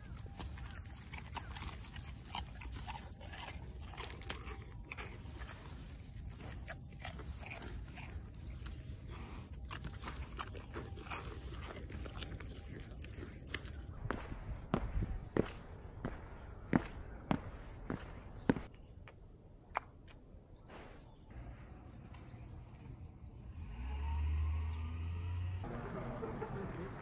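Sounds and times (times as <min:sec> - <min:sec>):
deer chewing crunchy crackers: 0:00.0 - 0:15.5.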